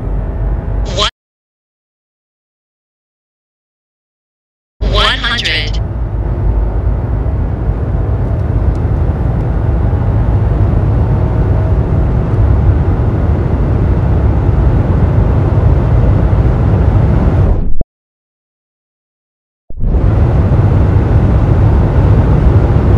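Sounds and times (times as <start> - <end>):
car engine drone under acceleration: 0.0 - 1.1, 4.8 - 17.8, 19.7 - 22.9
road and wind noise: 0.0 - 1.1, 4.8 - 17.8, 19.7 - 22.9.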